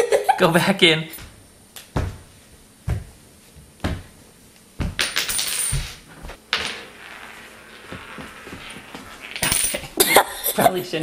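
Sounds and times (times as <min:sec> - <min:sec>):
footsteps on hardwood floor: 0:01.2 - 0:04.2, 0:07.8 - 0:09.2.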